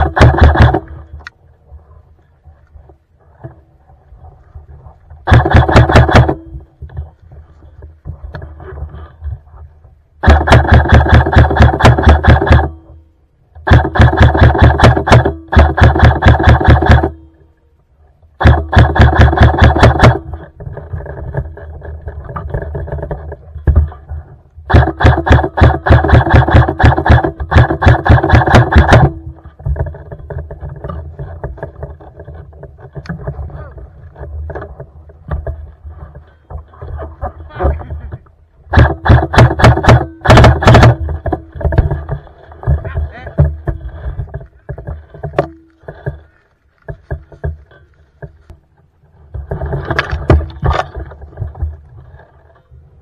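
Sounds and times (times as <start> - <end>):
airsoft rifle automatic fire: 0.0 - 1.0, 5.2 - 6.5, 10.2 - 12.8, 13.6 - 17.2, 18.4 - 20.5, 24.7 - 29.2, 38.7 - 41.1
quieter busy mechanical rattle: 0.0 - 1.4, 5.2 - 17.5, 18.4 - 53.0
knocks and rustling of gear: 39.7 - 53.0.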